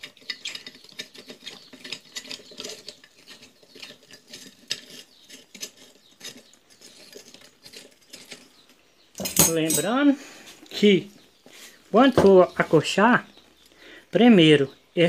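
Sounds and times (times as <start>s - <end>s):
hands handling metal parts: 0.0s - 10.8s.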